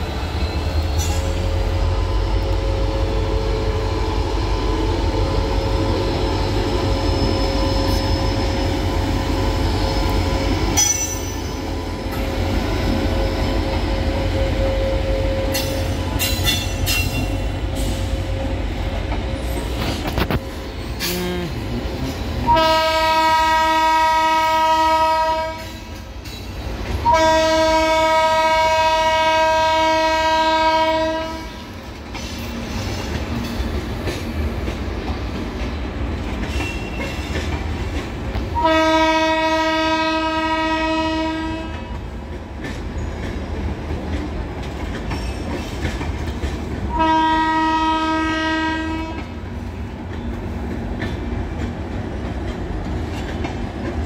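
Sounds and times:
train coaches rumbling and clacking: 0:00.0 - 0:54.0
locomotive horn blasts: 0:22.4 - 0:25.8, 0:27.0 - 0:31.6, 0:38.6 - 0:42.0, 0:46.9 - 0:49.3.

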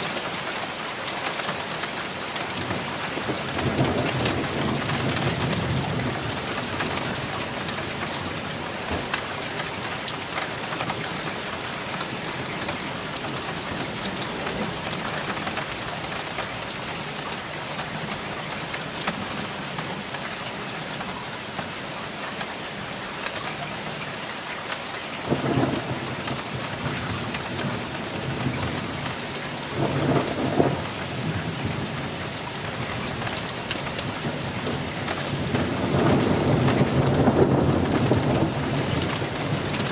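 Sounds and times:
rain hissing: 0:00.0 - 0:39.9
rolling thunder: 0:29.7 - 0:32.2, 0:34.0 - 0:39.9.

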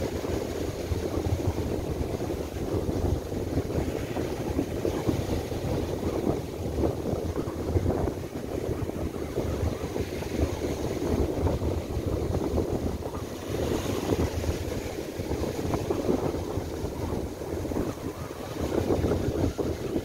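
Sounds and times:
gusty wind on microphone: 0:00.0 - 0:20.0
surf breaking on beach: 0:00.0 - 0:20.0.

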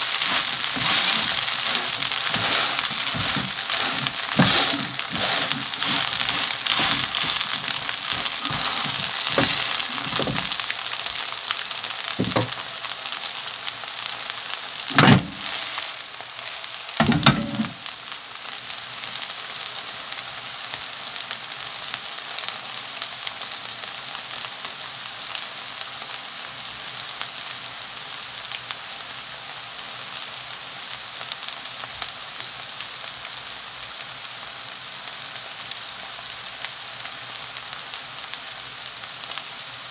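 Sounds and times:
batter sizzling in oil: 0:00.0 - 0:39.9
dull knocks: 0:12.2 - 0:12.6.

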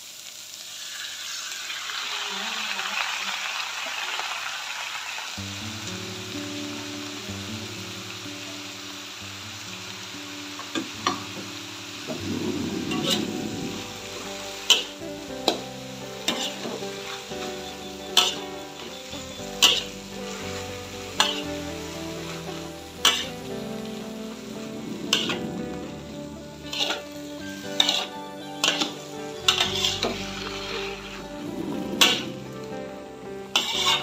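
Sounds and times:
vegetables sizzling in a wok: 0:00.0 - 0:34.0
metal spatula clanking on wok: 0:14.6 - 0:15.6, 0:16.3 - 0:16.8, 0:18.1 - 0:20.0, 0:21.2 - 0:21.4, 0:23.0 - 0:23.3, 0:27.8 - 0:30.2.

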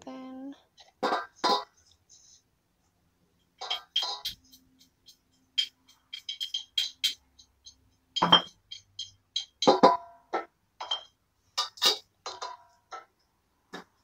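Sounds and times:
metal spoon clinking on pots: 0:03.5 - 0:13.1.

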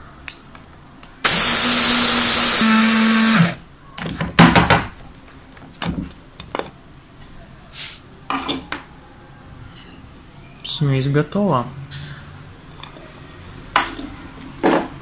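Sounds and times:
electric coffee grinder running: 0:01.2 - 0:03.6.

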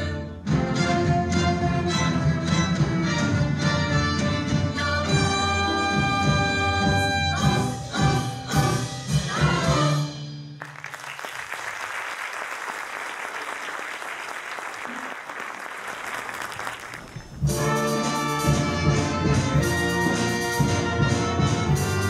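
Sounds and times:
orchestra playing: 0:00.0 - 0:07.7, 0:17.4 - 0:22.0
audience applauding: 0:10.6 - 0:17.5
brass playing loudly: 0:17.5 - 0:22.0.

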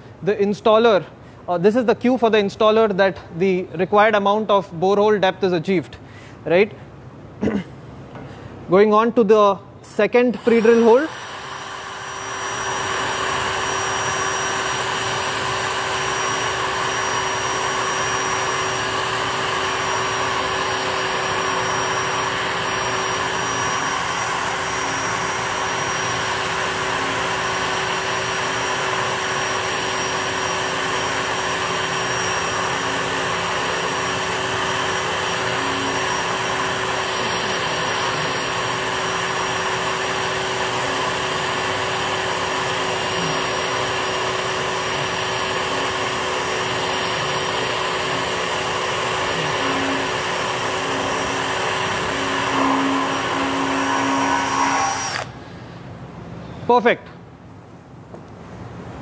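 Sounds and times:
power drill drilling into steel: 0:10.3 - 0:55.4.

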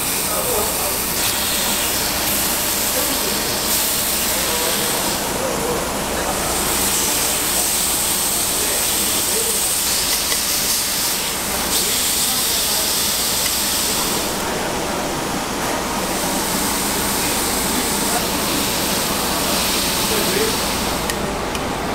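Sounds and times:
pork sizzling on a griddle: 0:00.0 - 0:05.4, 0:06.5 - 0:14.4, 0:16.1 - 0:21.0.

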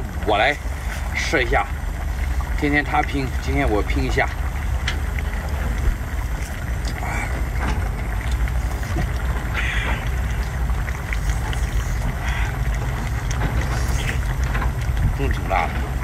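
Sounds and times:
steady low rumble: 0:00.0 - 0:16.0
man eating: 0:06.3 - 0:14.9.

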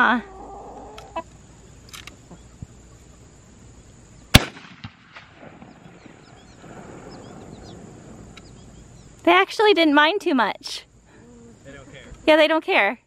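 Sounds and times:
rifle shot: 0:04.3 - 0:07.5.

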